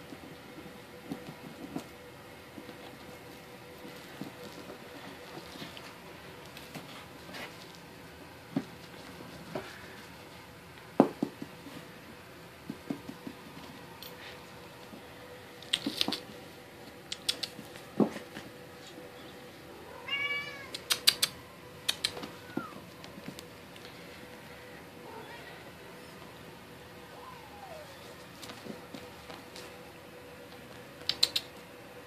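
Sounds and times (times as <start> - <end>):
kitten mewing: 20.0 - 22.8.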